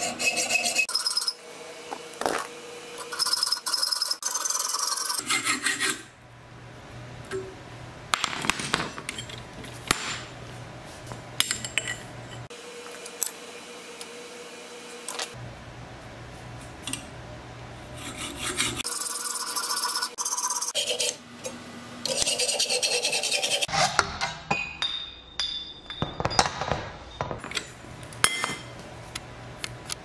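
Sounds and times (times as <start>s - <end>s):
hacksaw cutting steel tube: 0.0s - 1.4s, 3.0s - 6.1s, 18.0s - 21.2s, 22.0s - 24.0s.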